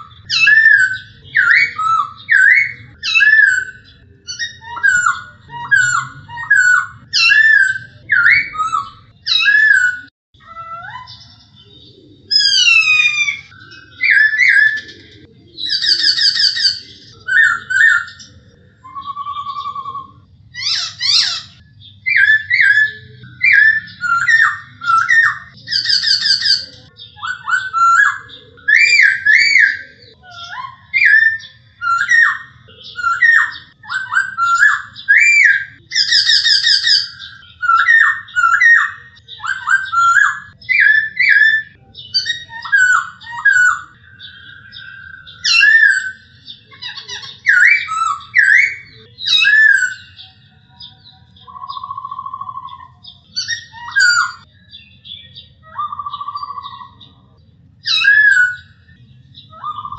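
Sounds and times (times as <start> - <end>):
bird singing whistled phrases: 0.0 - 57.2, 57.8 - 59.9.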